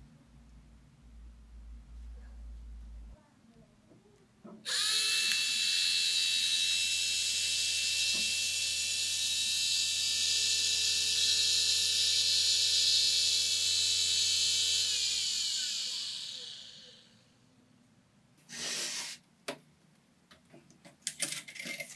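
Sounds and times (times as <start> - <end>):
small motor whining: 4.7 - 17.2.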